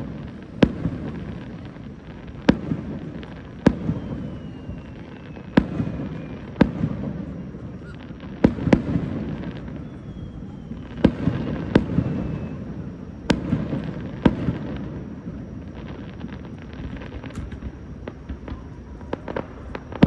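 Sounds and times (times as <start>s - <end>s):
firework crackles: 0.0s - 20.0s
firework shells bursting: 15.8s - 20.0s.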